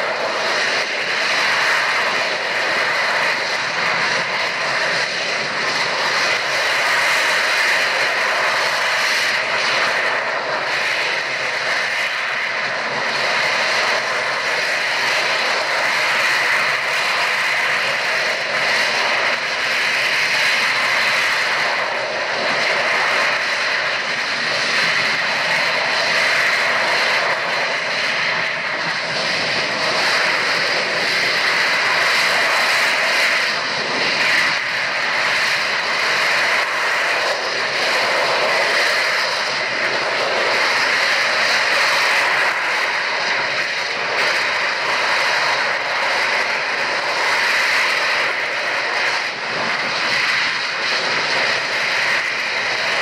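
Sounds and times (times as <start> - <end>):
high jet whine: 0.0 - 53.0
jet engine rushing roar: 0.0 - 53.0.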